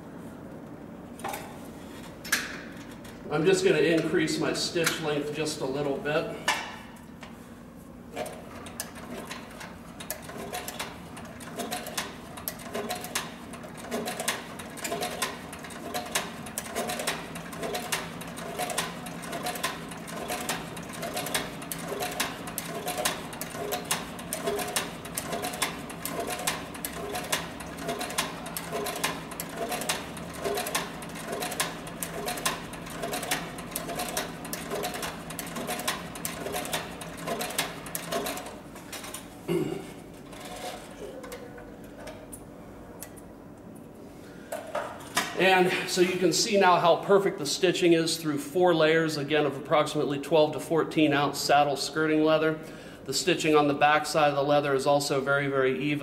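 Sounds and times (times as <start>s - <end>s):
motor hum: 7.1s - 46.4s
sewing machine stitch strokes: 8.2s - 38.6s, 40.3s - 40.9s.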